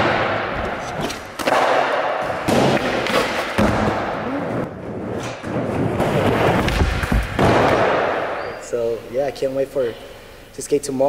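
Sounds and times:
skateboard wheels rolling on concrete: 0.0s - 8.0s.

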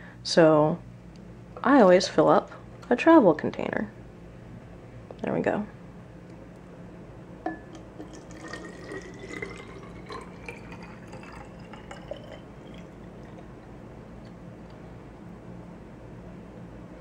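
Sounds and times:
liquid trickling into a bottle: 7.7s - 14.3s.

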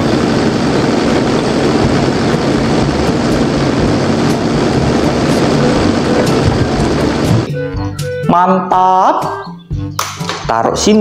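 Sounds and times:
diesel engine running: 0.0s - 7.9s.

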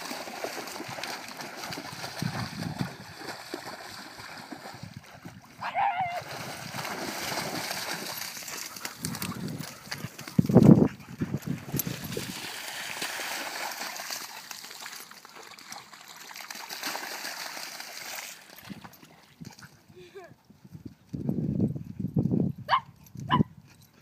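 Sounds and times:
water splashing and trickling: 0.0s - 20.3s.

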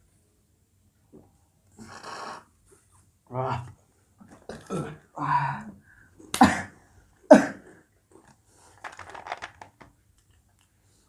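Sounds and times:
slurping through a straw: 1.8s - 2.5s.

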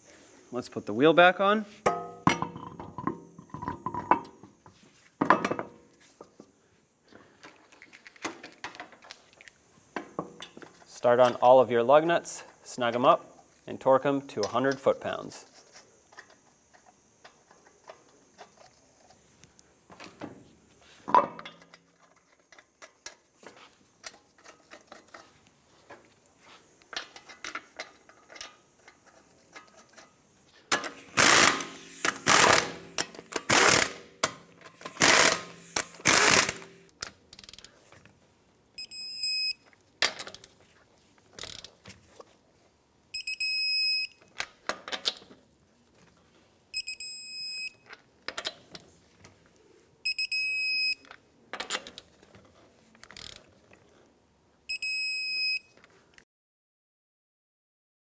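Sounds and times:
torque wrench clicks: 30.7s - 37.7s, 41.4s - 41.8s
torque wrench beeping: 30.8s - 36.9s, 38.8s - 39.6s, 43.1s - 44.2s, 46.7s - 47.8s, 50.0s - 51.0s, 54.7s - 55.7s
impact gun bursts: 30.9s - 34.0s, 34.8s - 36.8s.

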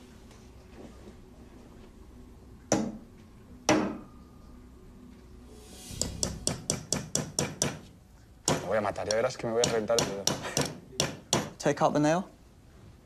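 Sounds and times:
hammer striking nail into wood: 2.7s - 3.0s, 3.7s - 4.0s, 6.5s - 7.9s, 8.5s - 11.6s.

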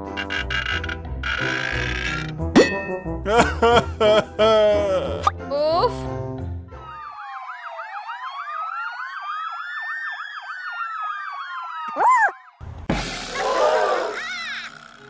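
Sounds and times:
electronic toy police siren: 6.8s - 12.6s.

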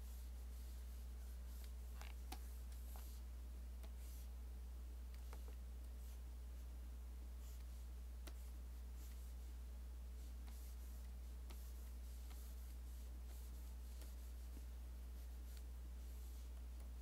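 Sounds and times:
low electrical hum: 0.0s - 17.0s
stylus scratching on drawing tablet: 7.4s - 16.9s.

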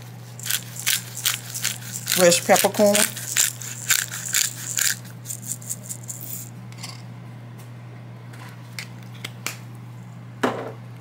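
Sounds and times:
pepper mill grinding clicks: 0.4s - 6.9s.

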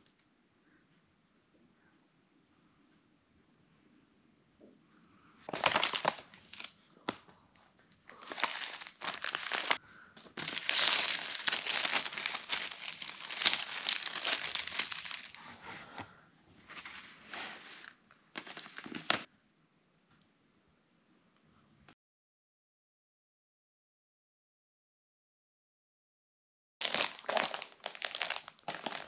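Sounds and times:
plastic bags crinkling: 5.5s - 6.8s, 8.1s - 15.4s, 16.7s - 19.3s, 26.8s - 29.0s.

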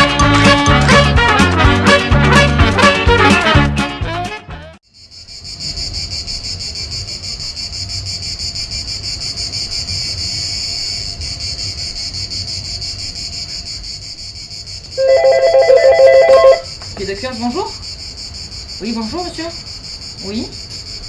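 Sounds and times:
cicadas chirping: 4.8s - 21.0s
telephone ringing: 15.0s - 16.7s.

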